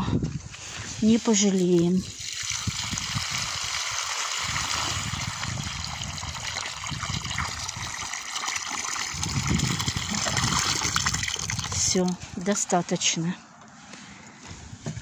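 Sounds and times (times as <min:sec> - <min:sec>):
water pouring into pooled water: 0:01.6 - 0:12.3.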